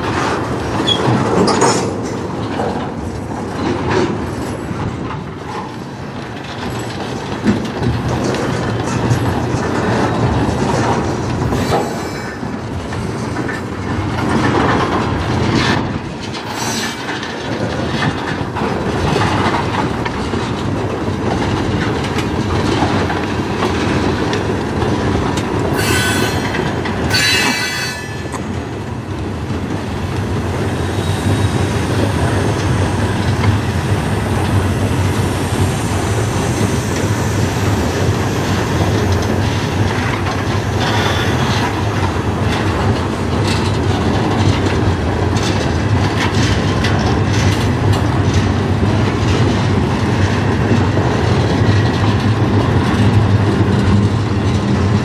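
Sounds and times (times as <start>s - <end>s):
rumble of train wheels on rail: 0.0s - 55.0s
wheels clicking over rail joints: 0.0s - 55.0s
high-pitched wheel squeals: 11.5s - 12.5s, 25.8s - 28.5s.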